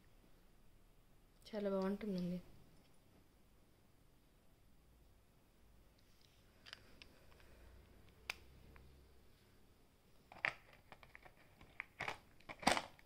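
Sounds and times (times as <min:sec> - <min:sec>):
packaging rustling: 0:10.3 - 0:13.0.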